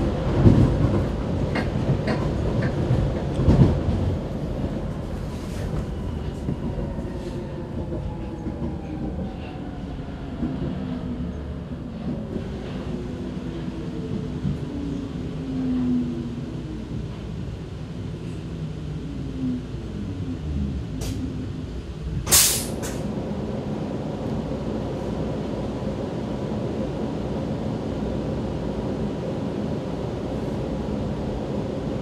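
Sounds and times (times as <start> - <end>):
metro train braking: 0.0 - 17.4, 20.4 - 27.0
short loud hiss: 22.3 - 23.0.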